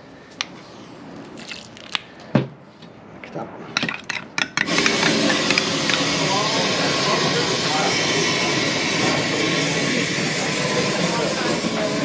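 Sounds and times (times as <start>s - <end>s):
propane burner roaring: 3.8s - 12.0s.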